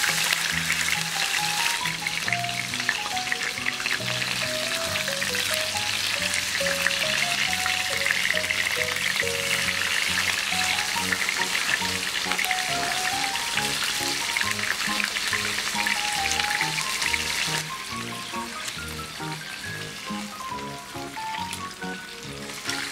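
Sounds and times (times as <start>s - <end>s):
background music with bass: 0.0s - 22.9s
fish sizzling in frying pan: 0.0s - 22.9s.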